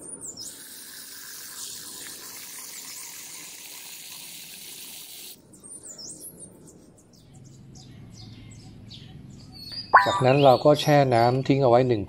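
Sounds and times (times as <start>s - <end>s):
bird chirping: 5.5s - 11.7s.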